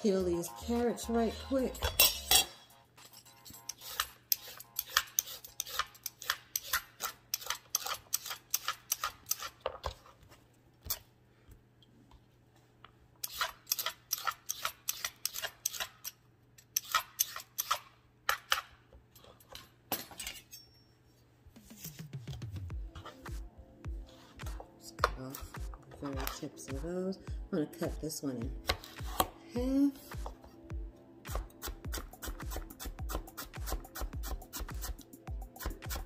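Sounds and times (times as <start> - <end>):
vegetable peeler scraping carrots: 3.6 - 9.6, 13.2 - 16.1, 16.8 - 17.9, 31.3 - 36.0.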